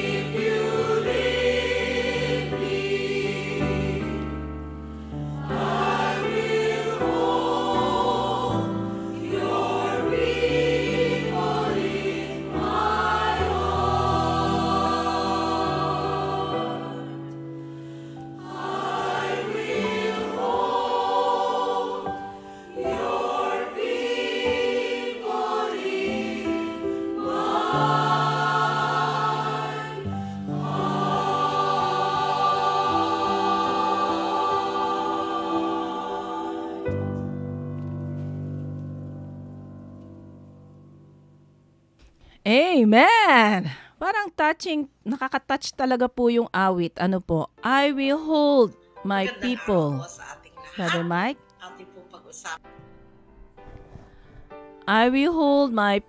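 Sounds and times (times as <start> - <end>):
choir singing slow hymn: 0.0 - 37.6.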